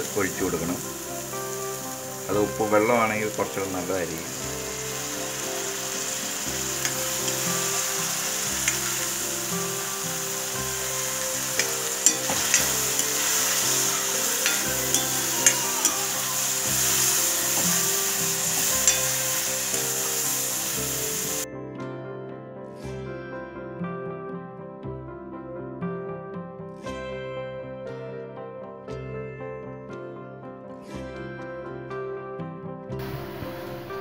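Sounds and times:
vegetables sizzling in hot oil: 0.0 - 21.5, 33.0 - 34.0
soft background music: 0.0 - 34.0
ladle scraping against pan: 10.7 - 20.0.

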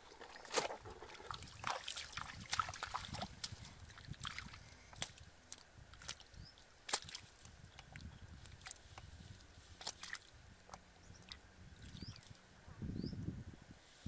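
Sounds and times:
hands splashing in shallow water: 0.0 - 6.3, 6.9 - 9.1, 9.7 - 10.3.

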